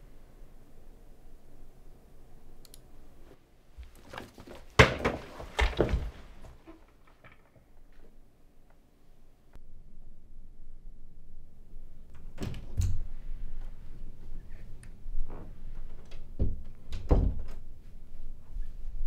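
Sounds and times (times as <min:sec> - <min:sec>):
faint clicks: 0:02.6 - 0:02.9
knocks and rustling: 0:03.8 - 0:08.1.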